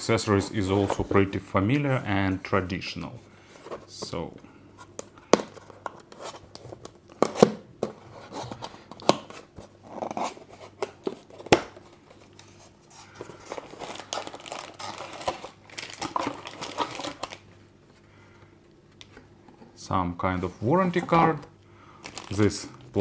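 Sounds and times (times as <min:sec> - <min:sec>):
plastic and paper crinkling: 0:04.9 - 0:17.5, 0:22.0 - 0:23.0
items clicking and knocking: 0:13.2 - 0:17.4.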